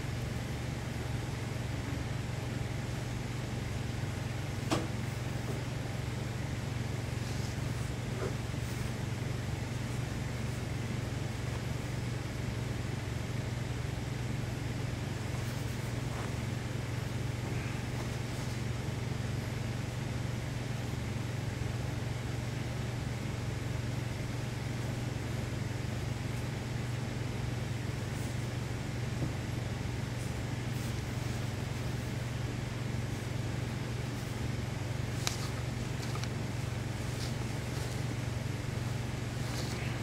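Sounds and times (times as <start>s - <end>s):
steady low hum: 0.0s - 40.0s.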